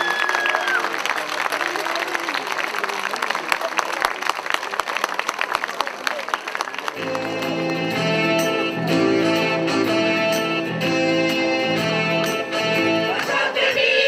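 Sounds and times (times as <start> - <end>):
audience applause: 0.0 - 8.0
mixed choir singing chords: 12.8 - 14.0.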